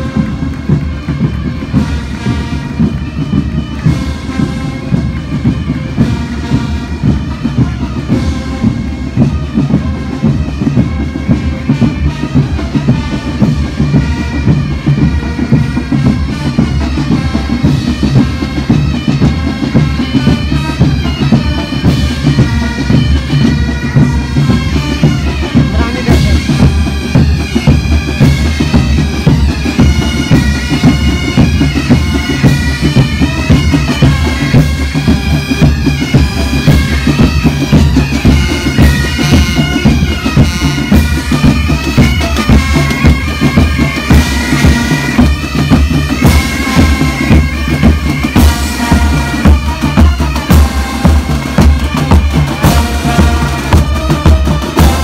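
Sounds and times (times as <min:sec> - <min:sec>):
bagpipe melody: 0:00.0 - 0:55.0
drums keeping beat: 0:00.0 - 0:55.0.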